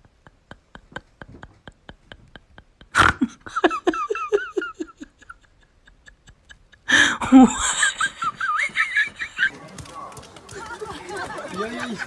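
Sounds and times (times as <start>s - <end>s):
person laughing: 0.0s - 9.6s
keyboard typing: 9.5s - 11.6s.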